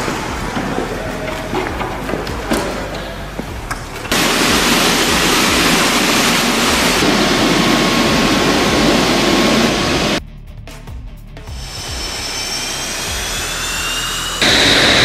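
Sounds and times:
jet engine rush: 4.1 - 10.2, 14.4 - 15.0.

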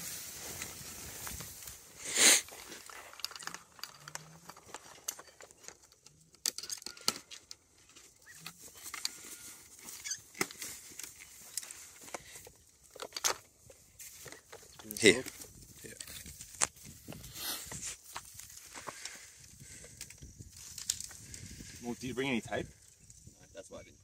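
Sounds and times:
hands rustling in grass: 0.0 - 3.7.

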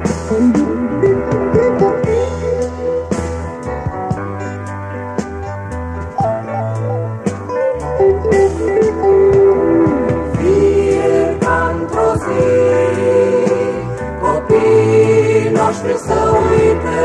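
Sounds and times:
funk-rock band music: 0.0 - 17.0
choir-like voices: 10.3 - 17.0.

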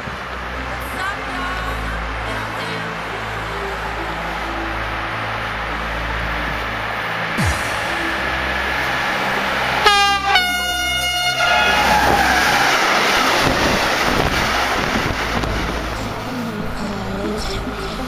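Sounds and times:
train wheels rumbling on rails: 0.0 - 18.0
two-tone train horn: 3.5 - 14.0.

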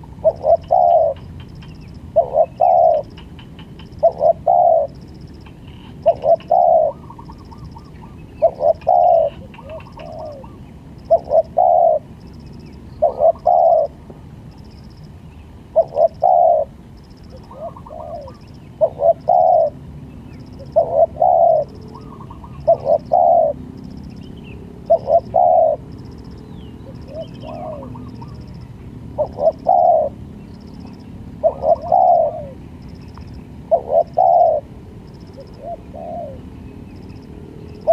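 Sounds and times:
dove cooing: 0.0 - 12.1, 13.0 - 14.0, 15.7 - 19.8, 20.6 - 23.6, 24.8 - 25.9, 26.8 - 28.6, 29.2 - 30.2, 30.8 - 32.6, 33.7 - 36.5.

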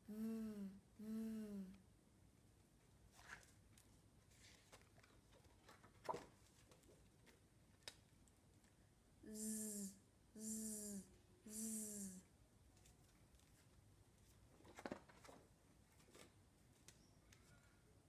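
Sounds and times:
woman making buzzing sound: 0.0 - 1.8, 9.2 - 12.3.

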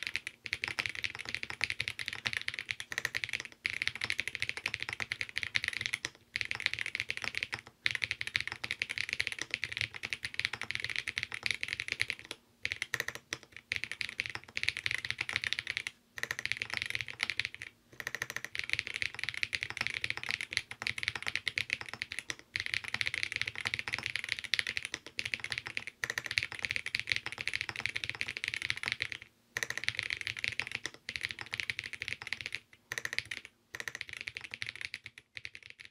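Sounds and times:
mechanical keyboard typing: 0.0 - 35.9.

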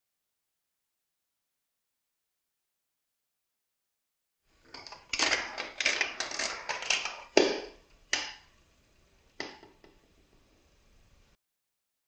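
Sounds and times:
marble clattering through plastic track: 4.8 - 7.6.

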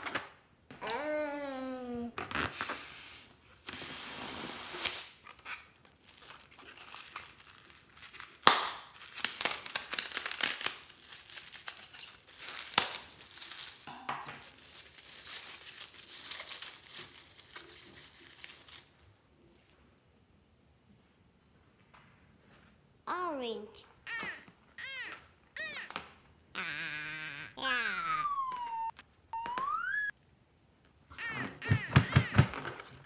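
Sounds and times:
hiss of balloon: 2.4 - 5.2
foam beads crinkling and crackling: 4.9 - 19.2, 24.1 - 25.9.

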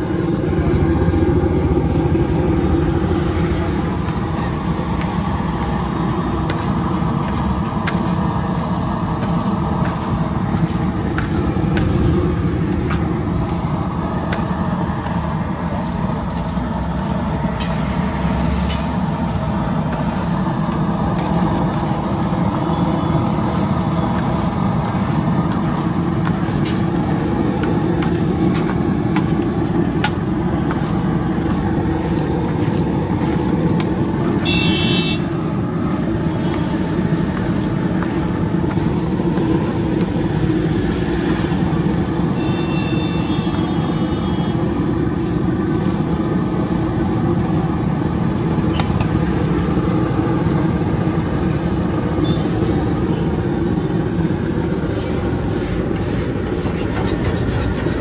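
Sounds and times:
street traffic rumble: 0.0 - 58.0.

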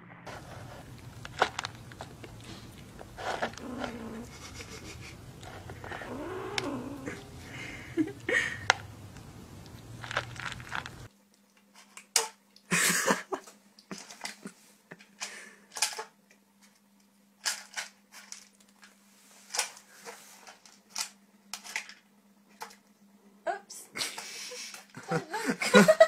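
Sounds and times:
faint steady hum: 0.0 - 26.0
kitten crunching dry food: 0.3 - 12.1.

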